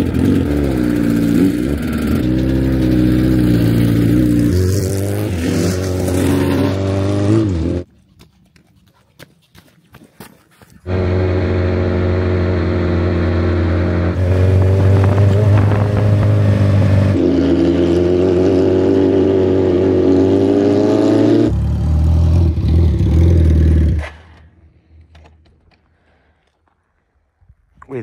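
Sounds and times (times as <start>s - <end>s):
motorcycle engine running: 0.0s - 7.8s, 10.9s - 20.4s.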